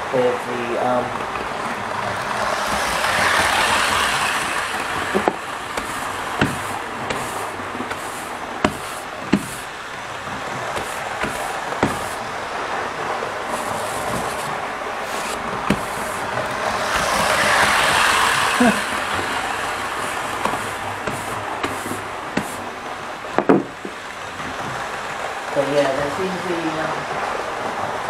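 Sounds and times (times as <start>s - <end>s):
brush sweeping wooden board: 2.4s - 12.3s, 13.3s - 22.7s
brush knocking on board: 5.0s - 9.7s, 10.5s - 12.2s, 13.5s - 17.4s, 20.0s - 22.6s.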